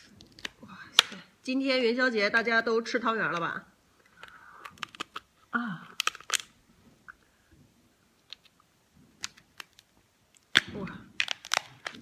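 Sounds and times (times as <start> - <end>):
lobster shell cracking: 0.2 - 1.2, 4.1 - 6.6, 9.2 - 12.0
faint chewing: 4.0 - 7.6.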